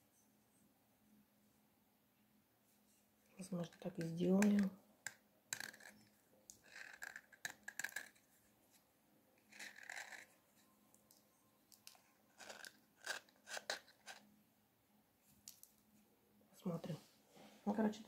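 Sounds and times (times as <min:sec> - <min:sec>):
knife scraping plaster: 0:05.6 - 0:08.2, 0:09.5 - 0:10.4, 0:12.3 - 0:14.2.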